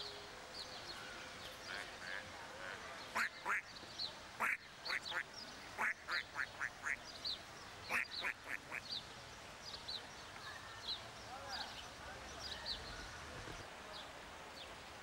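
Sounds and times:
ducks quacking: 0:01.7 - 0:03.7, 0:04.4 - 0:07.0, 0:07.9 - 0:08.9.

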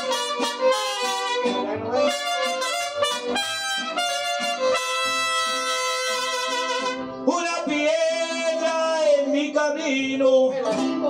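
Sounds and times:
trumpets: 0:00.0 - 0:07.2
mariachi band playing: 0:00.0 - 0:11.0.

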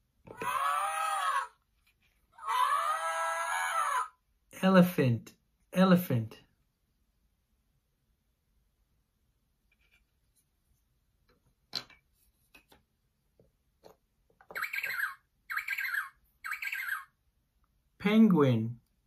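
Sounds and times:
recorded penguin squawks from speaker: 0:14.6 - 0:17.1.

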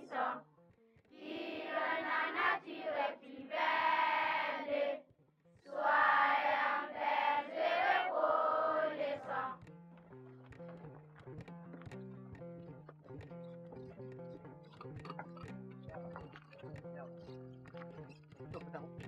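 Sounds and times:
group of voices singing: 0:00.0 - 0:00.4, 0:01.1 - 0:05.0, 0:05.7 - 0:09.6.

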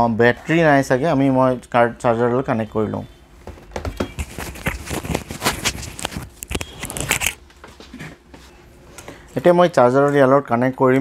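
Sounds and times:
plastic wrapping crinkling: 0:04.0 - 0:07.4.

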